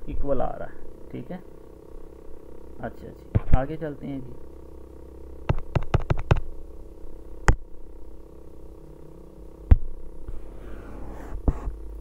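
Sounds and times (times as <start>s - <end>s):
low electrical hum: 0.0s - 12.0s
sharp clicks: 5.5s - 6.5s.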